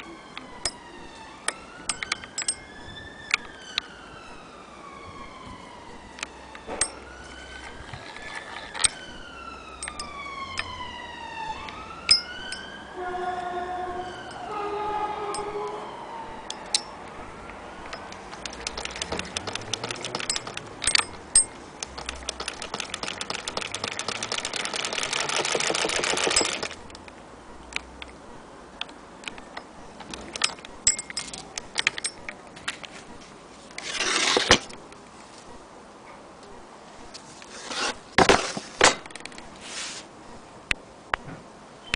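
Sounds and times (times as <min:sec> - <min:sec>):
hand-cranked sewing machine clicking: 0:18.3 - 0:21.0, 0:21.8 - 0:26.8.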